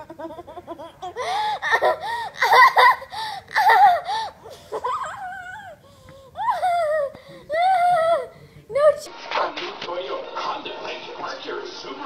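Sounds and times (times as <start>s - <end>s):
child giggling and squealing: 0.0s - 5.8s.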